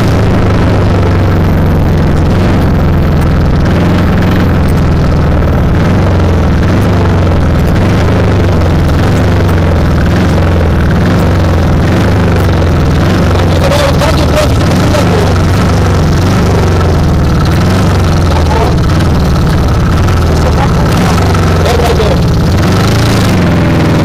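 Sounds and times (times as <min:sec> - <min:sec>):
vehicle engine running: 0:00.0 - 0:24.0.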